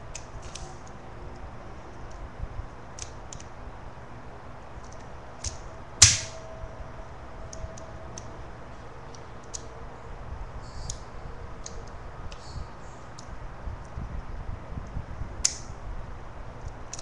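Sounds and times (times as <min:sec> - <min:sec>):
toy pistol firing: 0:06.0 - 0:06.4.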